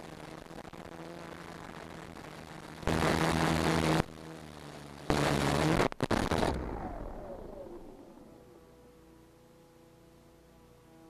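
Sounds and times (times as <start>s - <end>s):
motors spinning down whine: 5.0s - 9.1s.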